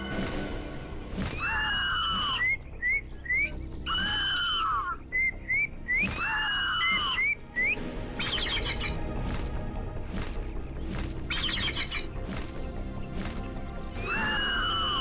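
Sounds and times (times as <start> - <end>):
background music: 0.0 - 15.0
falcon screeching: 1.3 - 9.0, 13.9 - 15.0.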